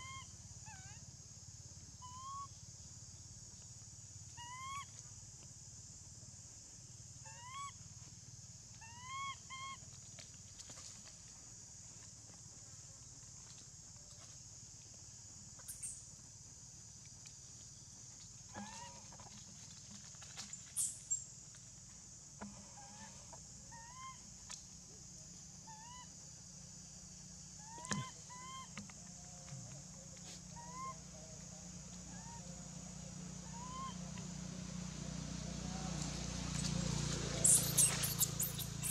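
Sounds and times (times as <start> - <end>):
baby monkey squeaking: 37.4 - 38.9.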